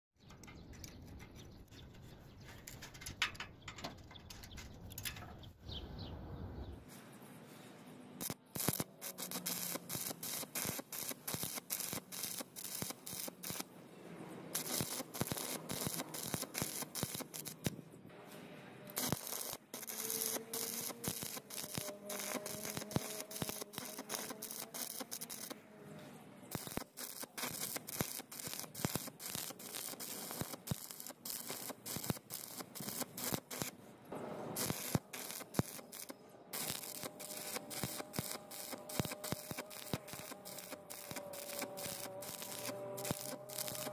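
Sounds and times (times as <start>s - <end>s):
welding arc crackling and spitting: 8.2s - 13.7s, 14.5s - 17.8s, 18.9s - 25.6s, 26.5s - 33.8s, 34.6s - 43.9s.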